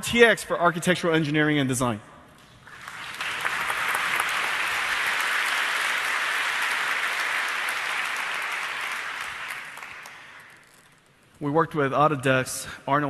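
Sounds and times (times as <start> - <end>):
audience applauding: 2.7 - 10.8.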